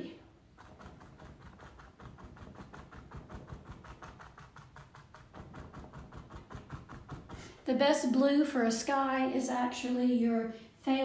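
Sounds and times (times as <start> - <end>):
sponge dabbing on canvas: 0.3 - 7.7.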